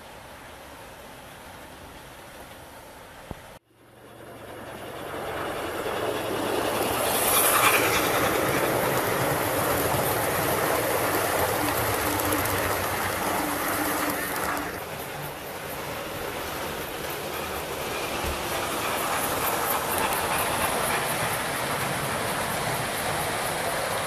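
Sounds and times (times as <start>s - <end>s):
model train wheels clattering: 6.1s - 24.0s.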